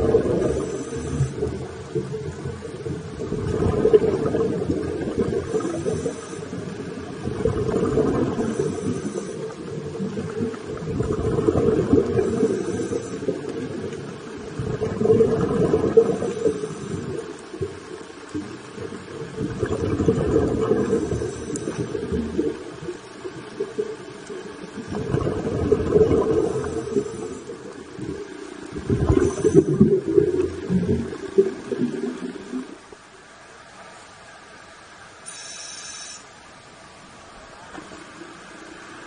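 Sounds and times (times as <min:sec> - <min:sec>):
underwater exhaled bubbles: 0:00.0 - 0:33.1.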